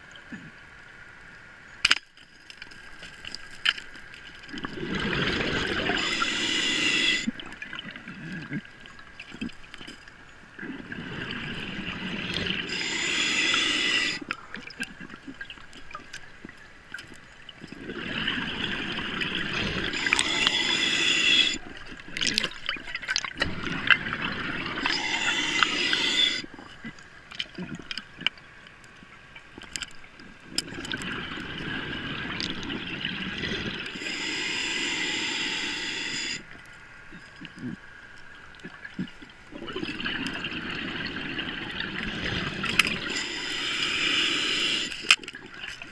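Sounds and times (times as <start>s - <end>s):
scuba regulator breathing bubbles: 4.6s - 7.8s, 10.6s - 14.4s, 17.7s - 21.7s, 23.4s - 26.5s, 30.6s - 36.5s, 39.6s - 45.3s.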